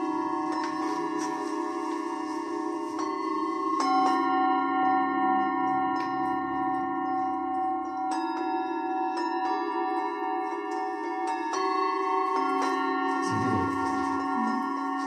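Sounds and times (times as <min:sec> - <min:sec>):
singing bowls ringing: 0:00.0 - 0:15.0.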